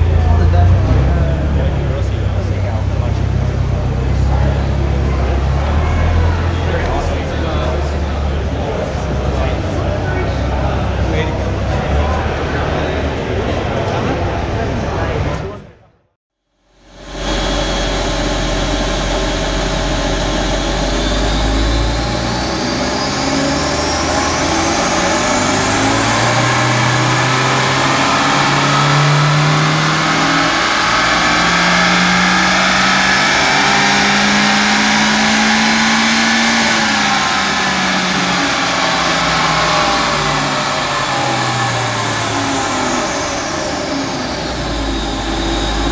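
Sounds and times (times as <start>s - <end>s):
high turbo whine: 0.0s - 15.6s, 16.7s - 45.9s
engine revving up: 0.0s - 15.8s, 16.9s - 45.9s.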